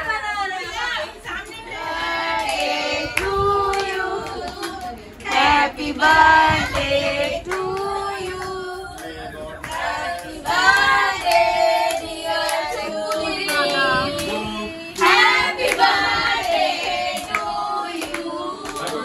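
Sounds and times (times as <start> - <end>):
group of voices singing: 0.0 - 19.0
hand claps: 2.4 - 5.5, 6.6 - 14.4, 15.0 - 19.0.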